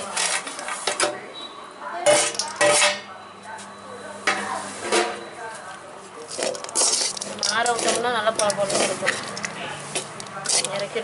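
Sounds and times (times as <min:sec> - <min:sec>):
ladle scraping pot: 0:02.1 - 0:03.0, 0:06.3 - 0:11.0
metal plate scraping pot: 0:02.1 - 0:03.0, 0:06.4 - 0:10.8.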